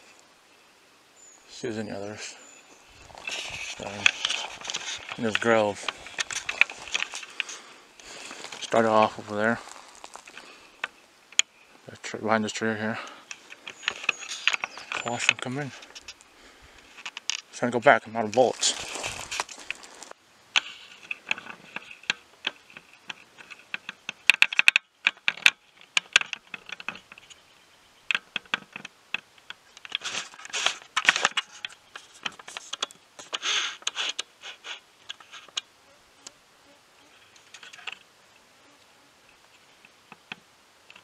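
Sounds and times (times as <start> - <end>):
footsteps crunching dry leaves: 2.7 - 10.6, 18.3 - 20.2.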